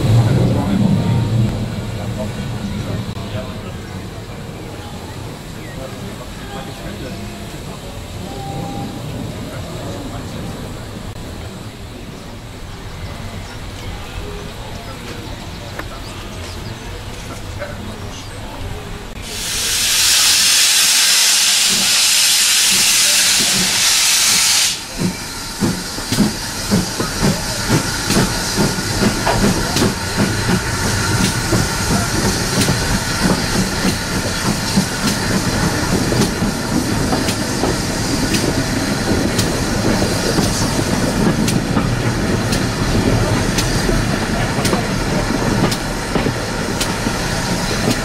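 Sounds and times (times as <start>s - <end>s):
train running: 0.0s - 48.0s
loud steam hiss: 19.1s - 48.0s
steam locomotive exhaust beats: 19.1s - 48.0s.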